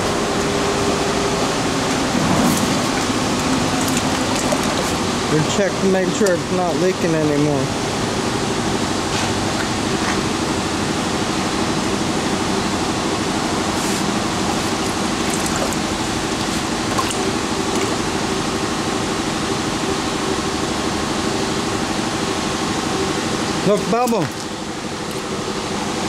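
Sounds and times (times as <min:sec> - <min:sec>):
machinery humming and hissing: 0:00.0 - 0:26.0
water sloshing: 0:01.8 - 0:06.5, 0:09.0 - 0:10.8, 0:13.5 - 0:18.5, 0:24.0 - 0:25.8.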